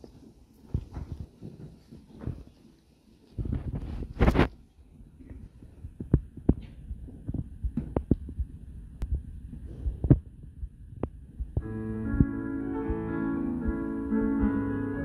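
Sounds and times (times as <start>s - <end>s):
faint rumble: 3.3s - 14.5s
keyboard sustained chords: 11.6s - 15.0s.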